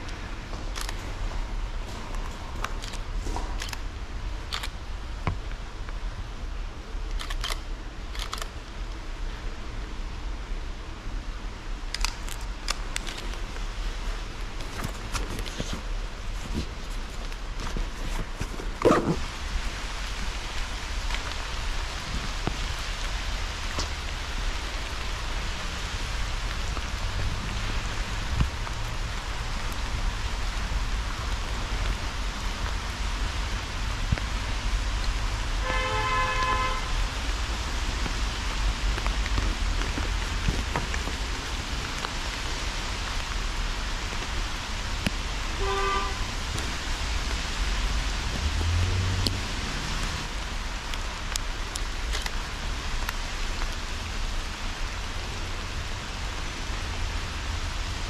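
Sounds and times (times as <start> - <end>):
steady hiss with low rumble: 0.0 - 58.0
vehicle horn honking: 35.6 - 36.9, 45.6 - 46.3.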